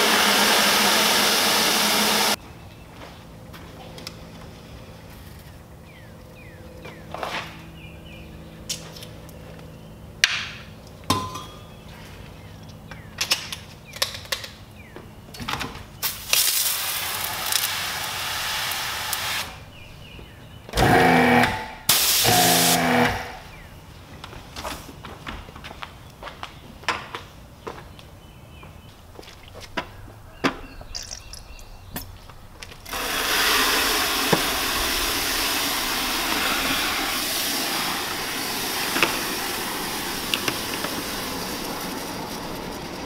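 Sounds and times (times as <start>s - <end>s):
pump motor running: 0.0s - 2.4s, 20.8s - 23.4s, 32.8s - 43.0s
water spray hissing: 0.0s - 2.4s, 16.0s - 19.6s, 21.9s - 23.4s, 32.8s - 43.0s.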